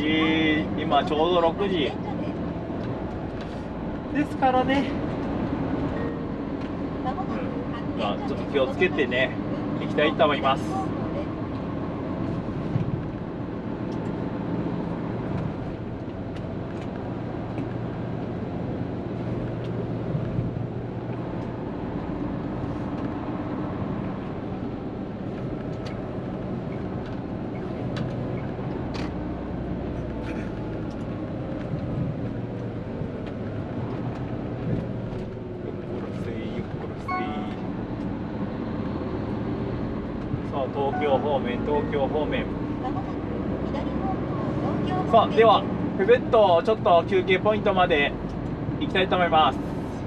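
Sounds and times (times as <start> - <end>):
road noise: 0.0 - 50.0
truck engine drone: 0.0 - 50.0.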